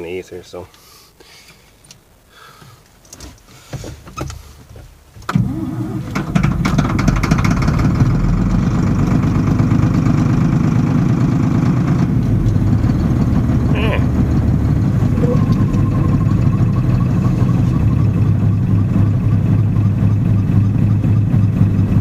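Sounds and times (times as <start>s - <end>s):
diesel tractor engine running: 5.3s - 22.0s.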